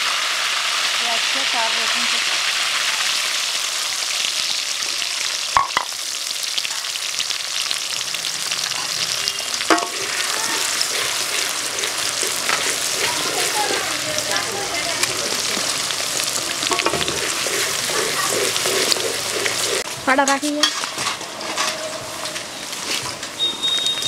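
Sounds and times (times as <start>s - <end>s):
onion sizzling in hot oil: 0.0s - 24.0s
stirring in metal pan: 9.6s - 22.2s.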